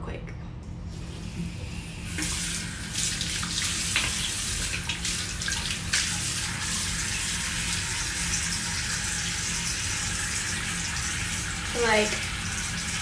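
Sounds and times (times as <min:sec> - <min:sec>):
tap running into sink: 0:03.2 - 0:06.6.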